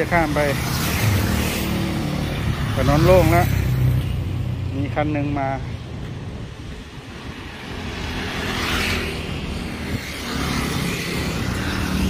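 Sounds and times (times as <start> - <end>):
motor scooter passing by: 0.0 - 4.7, 7.3 - 12.0
light road traffic: 0.0 - 12.0.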